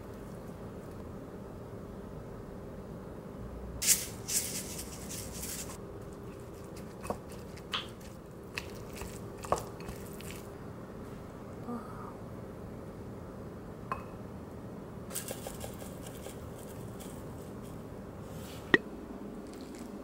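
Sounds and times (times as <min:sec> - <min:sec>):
spoon mixing sticky rice: 0:04.3 - 0:10.5.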